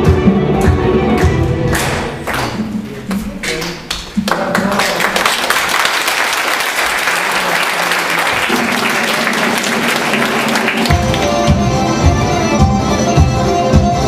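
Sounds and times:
audience applauding: 0:01.7 - 0:02.7, 0:03.4 - 0:11.6.

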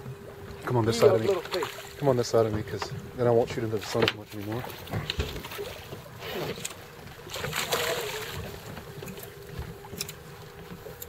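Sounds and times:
faint steady hum: 0:00.0 - 0:11.0
fish thrashing water splashing: 0:01.0 - 0:02.0, 0:07.2 - 0:09.9.

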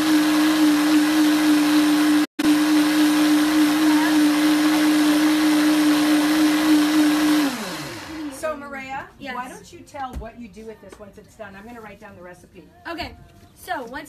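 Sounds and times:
blender running at high speed: 0:00.0 - 0:08.6.

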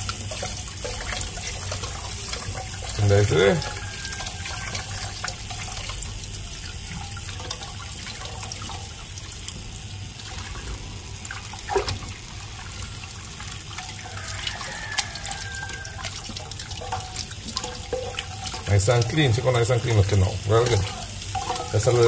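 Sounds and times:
tap water running into sink: 0:00.0 - 0:22.0.

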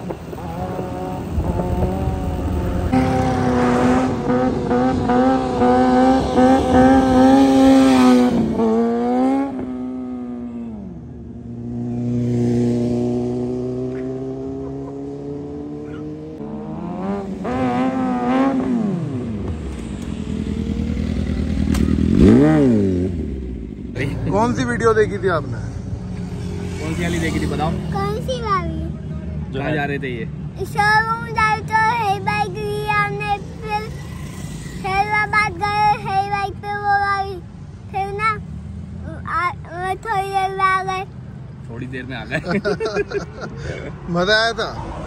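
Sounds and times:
motorcycle engine revving: 0:00.0 - 0:30.1, 0:32.0 - 0:36.8.

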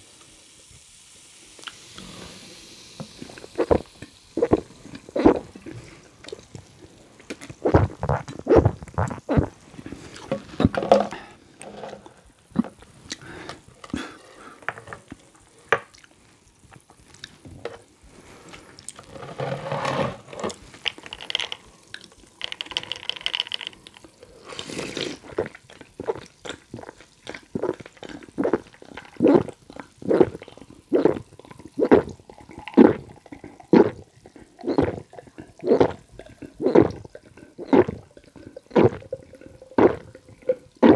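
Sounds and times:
loud swallows of soda: 0:24.4 - 0:25.4.

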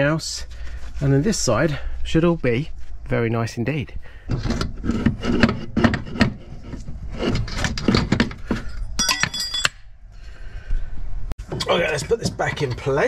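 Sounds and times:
metal clanks and rattles: 0:04.3 - 0:09.9
bright metallic ringing clink: 0:09.0 - 0:09.9.

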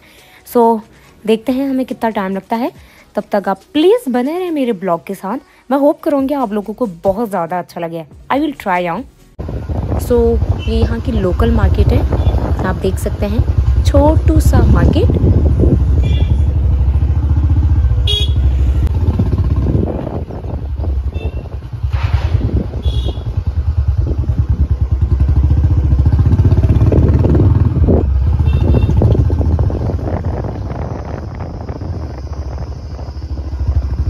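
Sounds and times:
motorcycle engine and wind rumble: 0:09.4 - 0:34.0
vehicle horn toots: 0:12.0 - 0:12.6, 0:15.9 - 0:16.6, 0:17.9 - 0:18.9, 0:20.4 - 0:23.6, 0:28.2 - 0:29.6.

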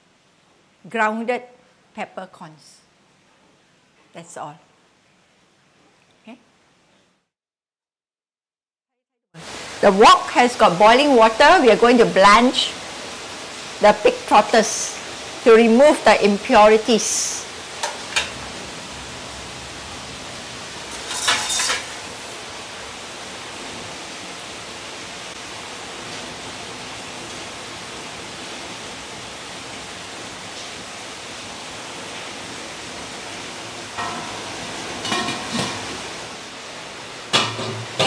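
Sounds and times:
boiling water hissing in wok: 0:09.4 - 0:38.0.

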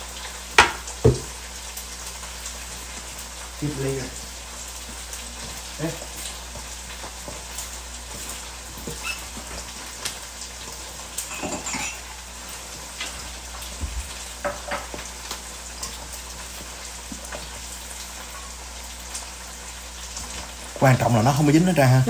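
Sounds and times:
light crackles and taps: 0:04.8 - 0:11.3.

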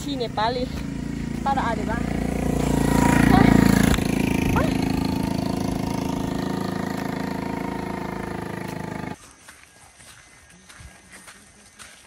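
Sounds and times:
small motorcycle engine: 0:00.0 - 0:09.2
footsteps on dirt trail: 0:00.0 - 0:12.0.

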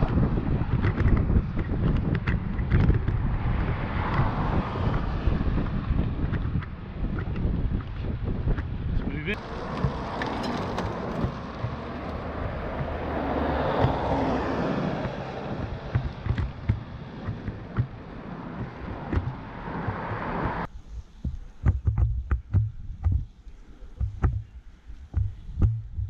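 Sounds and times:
wind buffeting microphone thumps: 0:00.0 - 0:26.0
wind rushing over microphone: 0:00.0 - 0:26.0.

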